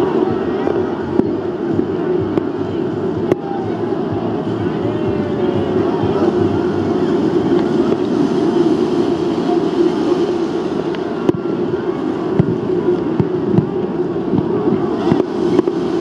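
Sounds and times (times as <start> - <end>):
large crowd din: 0.0 - 16.0.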